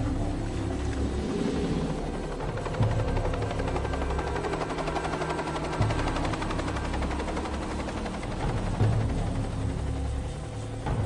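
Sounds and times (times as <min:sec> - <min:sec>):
film score music with drums: 0:00.0 - 0:11.0
light aircraft engine drone: 0:00.0 - 0:11.0.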